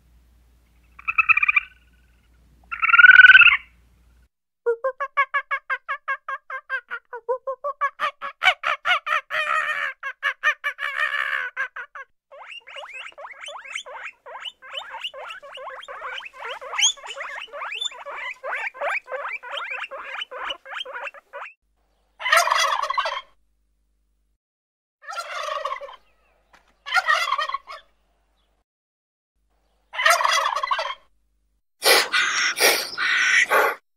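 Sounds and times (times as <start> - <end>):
fowl rattling calls: 12.5 - 21.5, 22.2 - 23.3, 25.1 - 26.0, 26.9 - 27.8, 30.0 - 31.0, 32.1 - 33.7.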